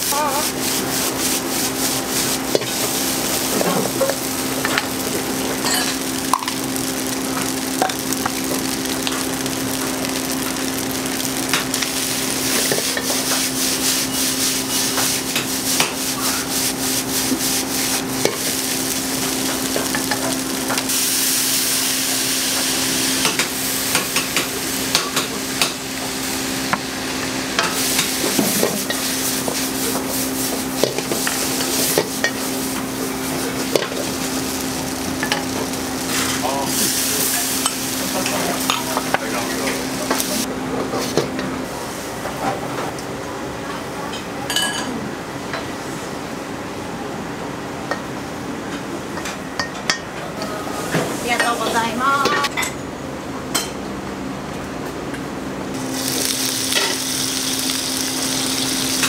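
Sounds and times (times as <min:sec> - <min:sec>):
rice sizzling in a wok: 0:00.0 - 0:42.7, 0:55.7 - 0:59.0.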